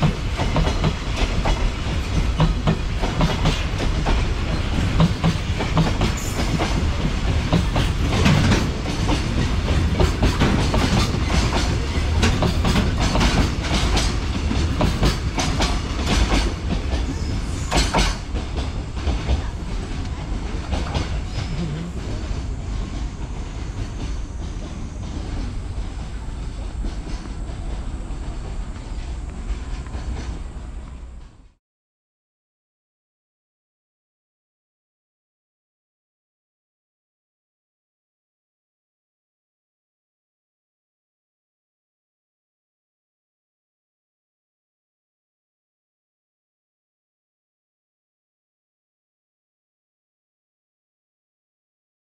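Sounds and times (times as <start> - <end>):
low train rumble: 0.0 - 31.6
train wheels clattering over rail joints: 0.0 - 31.6.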